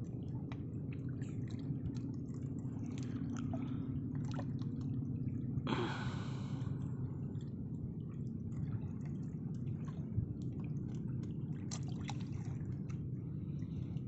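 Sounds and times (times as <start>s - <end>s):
steady low hum: 0.0s - 14.0s
water slapping against boat: 0.4s - 5.0s, 8.4s - 14.0s.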